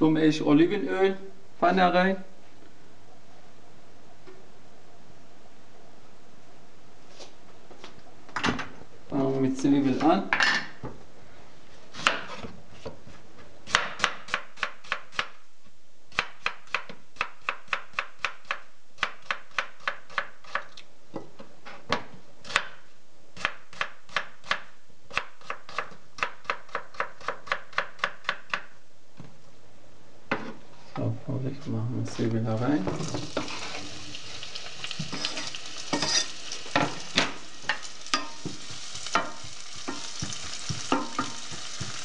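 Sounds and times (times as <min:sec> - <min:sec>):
knife chopping on cutting board: 0:12.0 - 0:12.9, 0:13.7 - 0:15.3, 0:23.4 - 0:28.7, 0:38.1 - 0:42.0.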